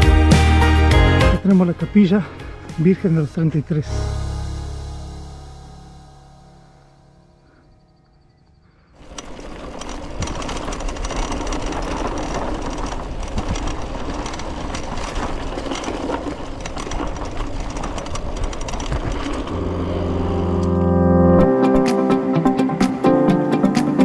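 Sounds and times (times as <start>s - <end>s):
bike tyres on dirt: 8.4s - 20.8s
bike clicking and rattling: 8.7s - 19.6s.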